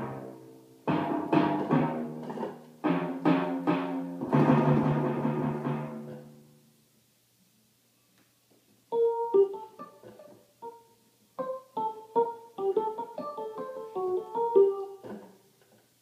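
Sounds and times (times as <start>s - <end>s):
digital keyboard melody: 0.9s - 5.0s, 8.9s - 15.1s.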